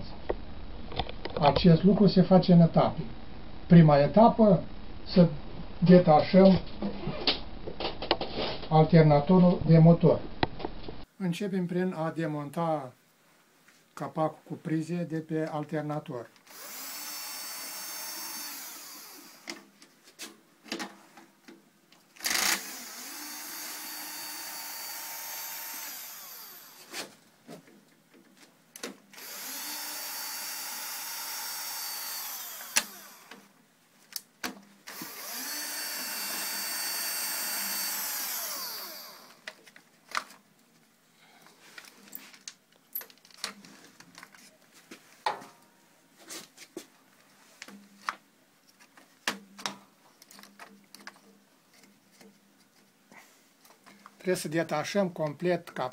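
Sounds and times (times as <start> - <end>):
cordless drill motor whirring: 16.5 - 19.6, 22.2 - 26.9, 29.2 - 33.4, 34.9 - 39.4.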